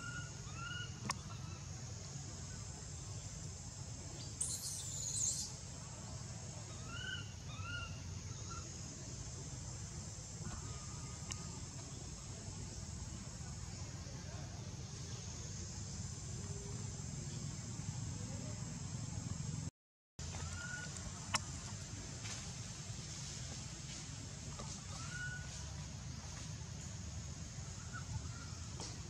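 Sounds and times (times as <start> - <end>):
high insect drone: 0.0 - 19.7.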